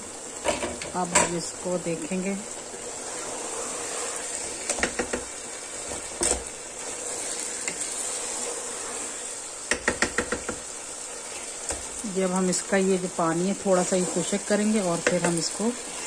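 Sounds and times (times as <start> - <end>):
steady sizzle: 0.0 - 16.0
spatula stirring rice in pot: 2.6 - 16.0
spatula knocking against pot: 4.7 - 5.3, 9.7 - 10.7.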